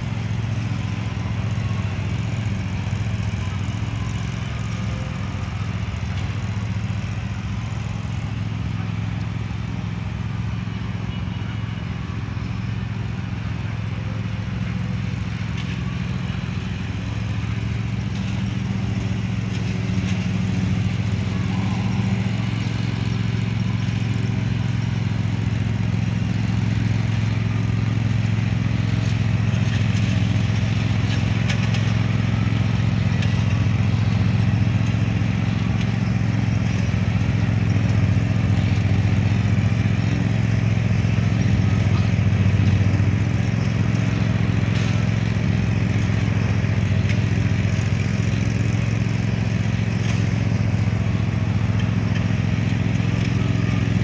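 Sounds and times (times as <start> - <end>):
mower engine running: 0.0 - 54.0.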